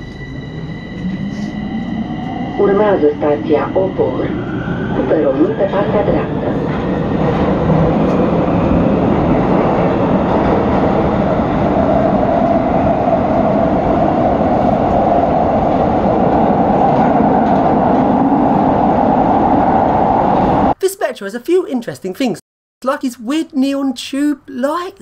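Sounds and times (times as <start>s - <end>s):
steady whine: 0.0s - 6.6s
train wheels rumbling on rail: 5.3s - 20.8s.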